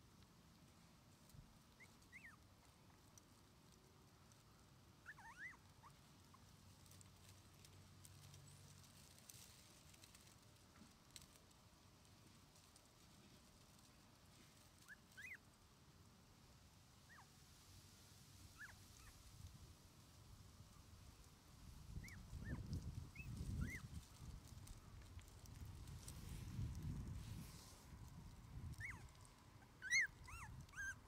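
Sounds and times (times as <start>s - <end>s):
puppy squeaking and whimpering: 1.8s - 2.4s, 5.0s - 6.0s, 14.8s - 15.4s, 18.6s - 19.1s, 22.0s - 23.8s, 28.8s - 29.1s, 29.7s - 31.0s.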